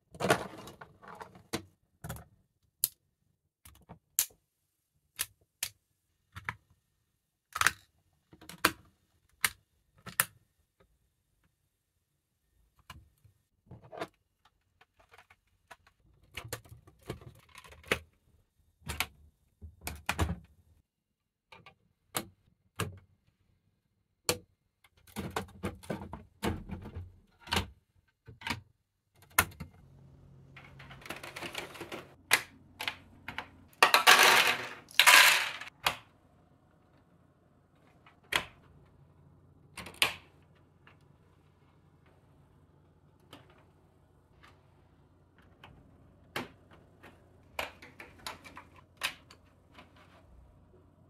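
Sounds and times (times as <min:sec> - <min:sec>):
plastic clatter and rustling: 0:00.1 - 0:02.2, 0:30.6 - 0:35.7
plastic parts clicking together: 0:07.5 - 0:10.4.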